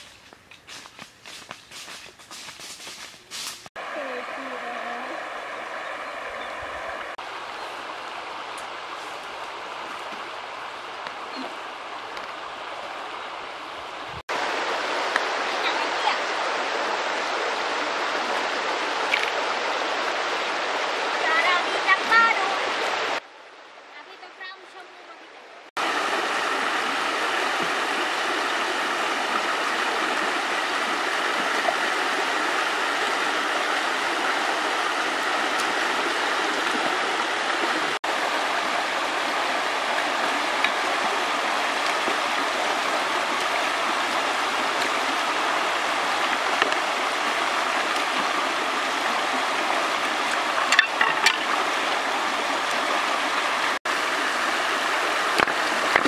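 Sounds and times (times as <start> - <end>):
water splashes: 3.7 - 23.3, 25.7 - 56.0
river rushing over rocks: 3.8 - 23.2, 25.8 - 56.0.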